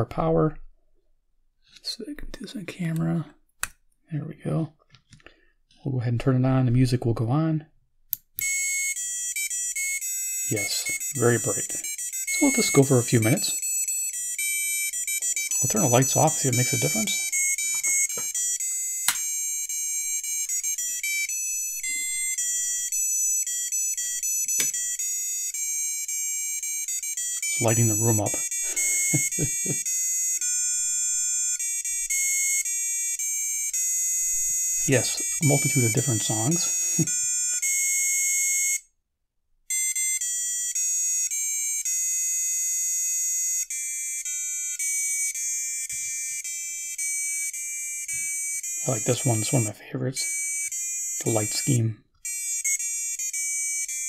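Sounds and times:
beeping electronic melody: 8.4s - 38.8s, 39.7s - 54.0s
sharp clicks: 24.5s - 24.8s.

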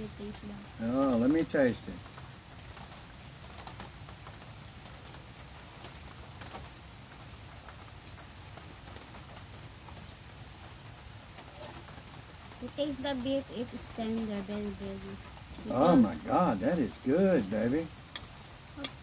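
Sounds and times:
rain pattering: 0.0s - 19.0s
low steady hum: 12.7s - 18.0s.

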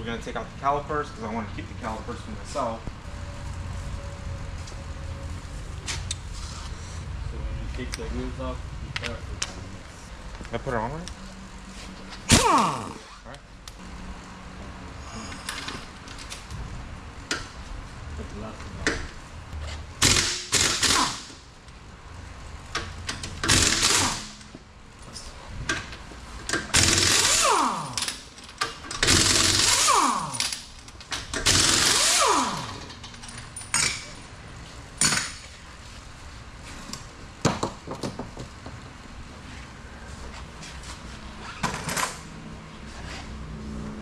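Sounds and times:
impact wrench whirring: 12.3s - 13.2s, 20.0s - 21.4s, 23.4s - 24.4s, 26.7s - 28.2s, 29.0s - 30.7s, 31.4s - 32.9s.

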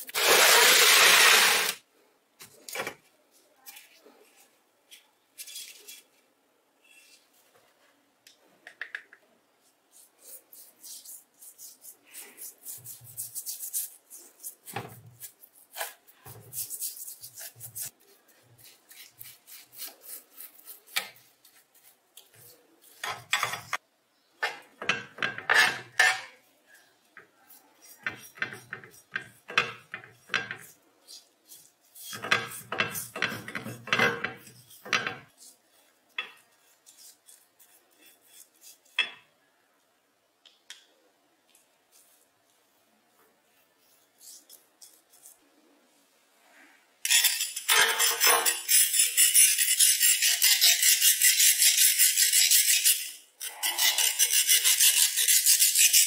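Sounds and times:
paintbrush on wet metal: 9.6s - 23.5s, 26.4s - 33.8s, 34.4s - 39.3s
metal parts scraping in tray: 47.1s - 55.2s.

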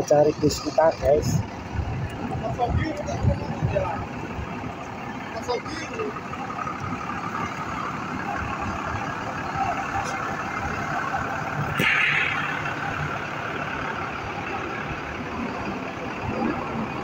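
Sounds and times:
bus engines droning: 0.0s - 17.0s
sharp click: 11.7s - 12.5s
short hiss of air: 11.7s - 12.6s.

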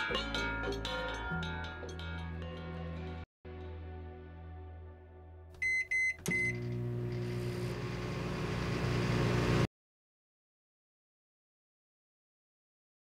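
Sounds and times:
short high beeps: 5.6s - 6.6s.

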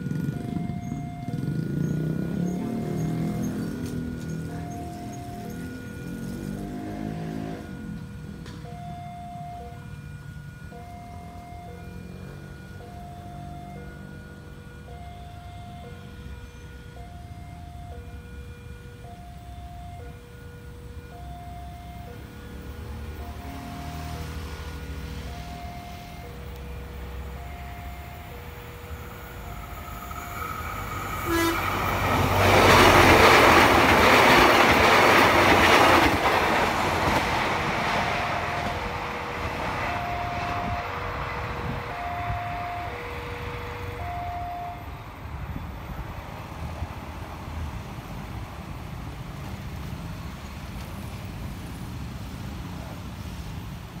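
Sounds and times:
rush of passing train: 0.0s - 54.0s
two-note alternating chime: 0.1s - 18.0s
train horn blast: 2.2s - 8.0s, 23.2s - 24.7s, 31.1s - 33.6s, 37.8s - 44.8s.

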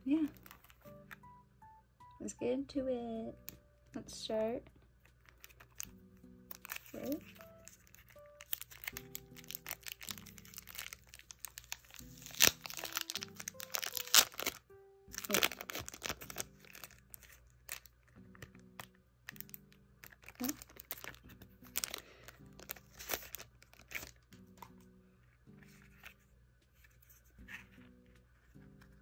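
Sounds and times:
soft background music: 0.0s - 29.0s
cellophane crinkling and tearing: 0.1s - 1.1s, 5.0s - 24.6s.

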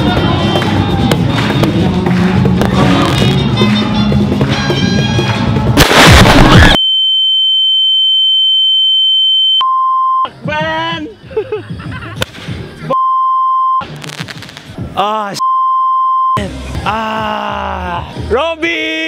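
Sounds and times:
music: 0.0s - 6.8s, 10.2s - 13.0s, 16.4s - 19.0s
loud firework blast: 5.8s - 6.8s, 14.0s - 14.7s.

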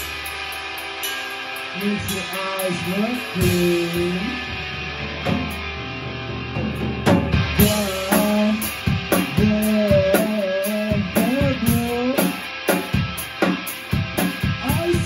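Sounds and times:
drum kit hits: 0.0s - 15.0s
electric guitar rock music: 0.0s - 15.0s.

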